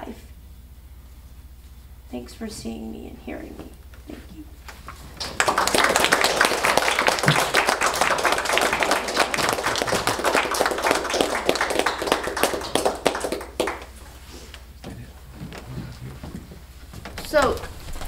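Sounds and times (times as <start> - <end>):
audience applauding: 4.8 - 14.3.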